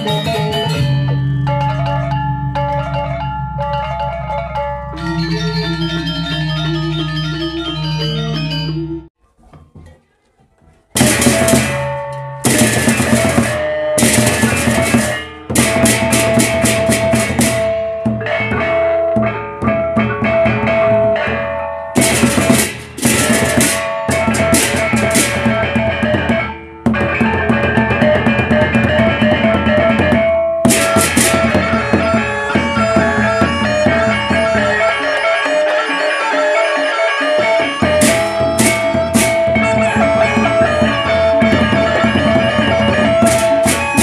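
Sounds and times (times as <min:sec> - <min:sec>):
steady melody line: 0:00.0 - 0:09.2, 0:28.3 - 0:44.0
clashing cymbals: 0:11.0 - 0:17.8, 0:22.0 - 0:25.6
barrel drums beaten with sticks: 0:11.0 - 0:21.1, 0:22.0 - 0:34.6, 0:37.9 - 0:44.0.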